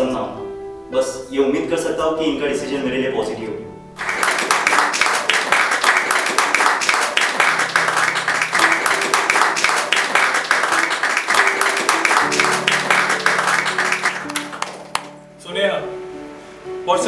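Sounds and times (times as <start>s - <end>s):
audience applauding: 4.0s - 15.2s.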